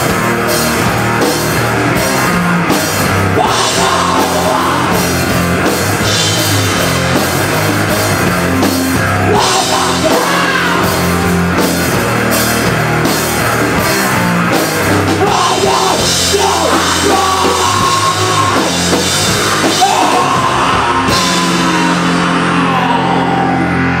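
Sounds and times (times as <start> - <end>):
live rock band playing: 0.0 - 24.0
singer yelling into microphone: 3.3 - 5.2, 9.2 - 11.2, 15.2 - 18.9, 19.5 - 24.0.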